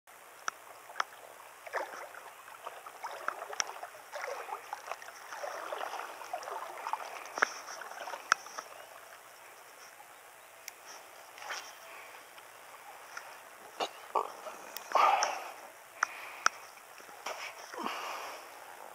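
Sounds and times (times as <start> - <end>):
water lapping against boat hull: 0.5 - 10.0.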